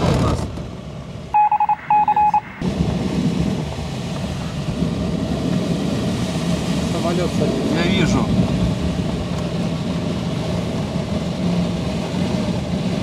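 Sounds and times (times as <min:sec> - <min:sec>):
two-stroke engine drone: 0:00.0 - 0:13.0
short electronic beeps: 0:01.4 - 0:02.6.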